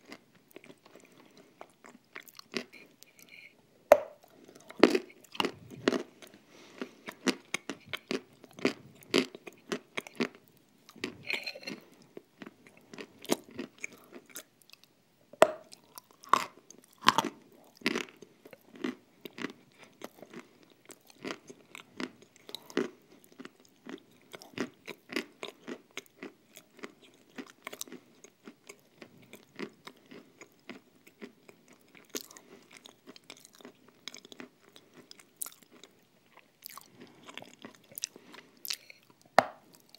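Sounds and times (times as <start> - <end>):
close-miked chewing: 0.0 - 3.5, 4.1 - 14.9, 15.6 - 39.9.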